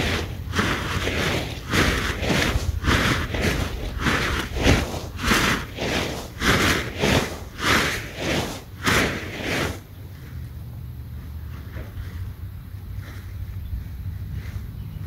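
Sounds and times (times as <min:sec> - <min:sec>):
tarp flapping and rustling: 0:00.0 - 0:09.9
wind rumble on microphone: 0:00.0 - 0:15.0.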